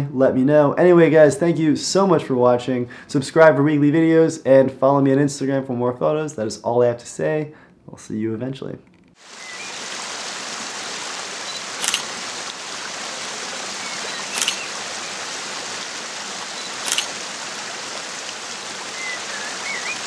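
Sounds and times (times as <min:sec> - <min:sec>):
running water rushing: 0:09.2 - 0:20.0
camera shutter clicking: 0:11.8 - 0:12.1, 0:14.2 - 0:14.7, 0:16.6 - 0:17.2
faint chirps: 0:13.8 - 0:15.2, 0:18.9 - 0:20.0.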